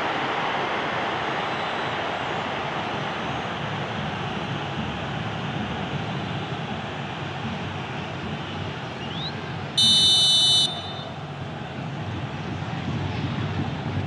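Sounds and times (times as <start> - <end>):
stadium crowd roaring: 0.0 - 12.6
referee's whistle blast: 9.8 - 11.2.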